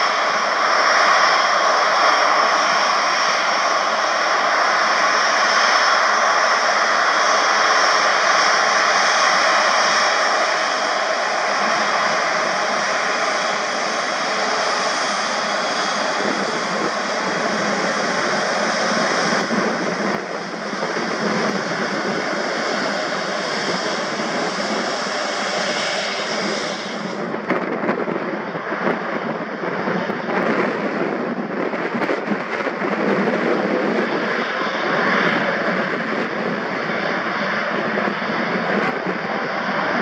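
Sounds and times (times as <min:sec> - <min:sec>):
jet engines rushing with high whine: 0:00.0 - 0:40.0.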